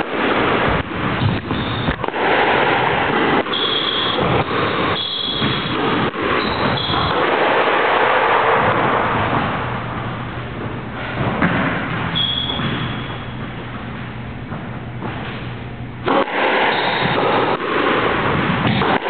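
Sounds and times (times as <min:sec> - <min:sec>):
steady rushing noise: 0:00.0 - 0:19.0
shoe squeaking on court floor: 0:01.2 - 0:02.0, 0:03.5 - 0:07.2, 0:12.0 - 0:13.6
squash ball knock: 0:18.3 - 0:19.0.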